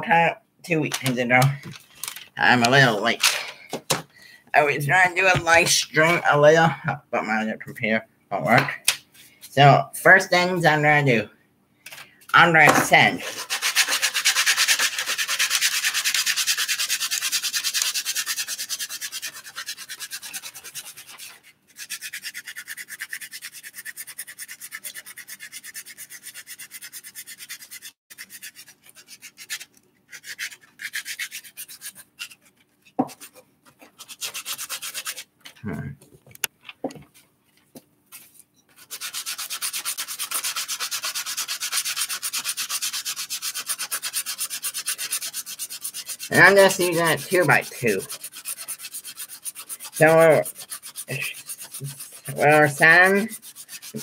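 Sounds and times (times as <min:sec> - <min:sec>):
sandpaper rubbing on wood: 0:12.7 - 0:32.4, 0:33.0 - 0:35.3, 0:38.8 - 0:54.0.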